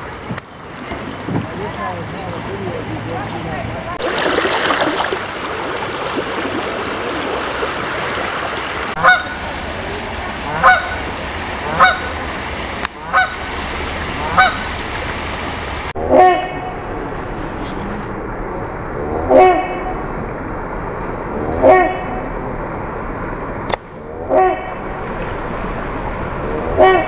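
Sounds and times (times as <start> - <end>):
creek water rushing: 3.9 - 15.9
geese honking: 5.7 - 9.5, 10.5 - 12.2, 13.0 - 13.6, 14.2 - 14.8.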